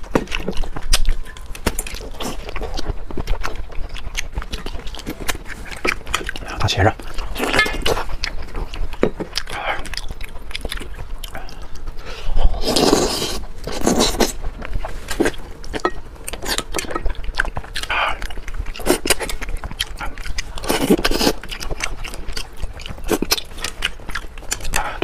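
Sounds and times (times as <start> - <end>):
man chewing and sucking food: 0.0 - 25.0.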